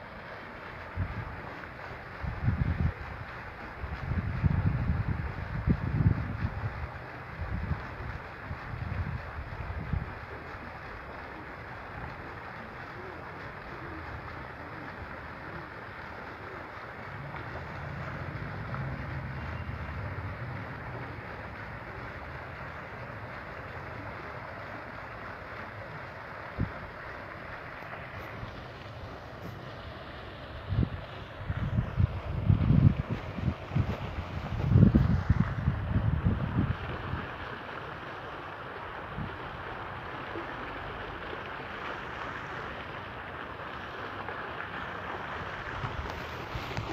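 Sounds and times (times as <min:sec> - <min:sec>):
fountain water splashing: 0:00.0 - 0:46.9
wind rumble on microphone: 0:00.9 - 0:10.7, 0:26.4 - 0:27.2, 0:30.5 - 0:37.6, 0:45.4 - 0:46.9.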